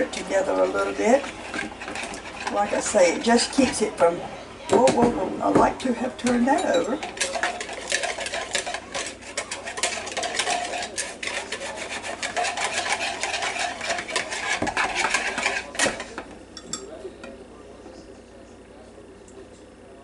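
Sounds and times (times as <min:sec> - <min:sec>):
wire whisk scraping a bowl: 0:00.0 - 0:04.0, 0:06.2 - 0:16.9.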